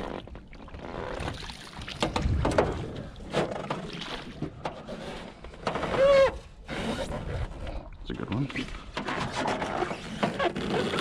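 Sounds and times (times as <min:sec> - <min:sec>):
water splashing: 0:00.0 - 0:05.5.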